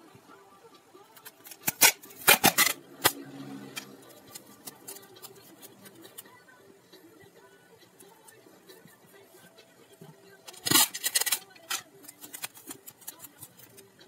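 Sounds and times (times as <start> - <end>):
packing tape ripping: 1.2 - 3.2, 10.5 - 13.8
tape being handled: 4.0 - 6.3, 10.5 - 14.0.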